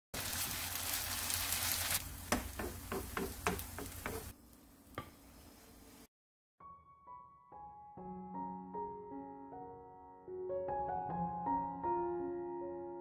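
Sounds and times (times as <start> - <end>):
food sizzling in oil: 0.2 - 6.0.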